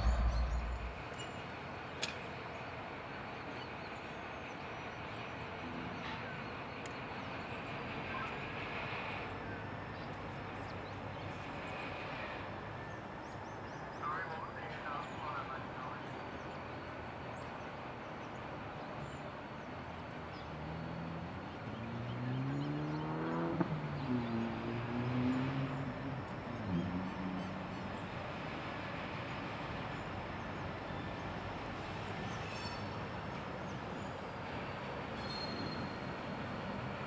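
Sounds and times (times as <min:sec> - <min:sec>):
engine throttling up: 0:00.0 - 0:01.0
diesel locomotive rumble: 0:00.0 - 0:21.8.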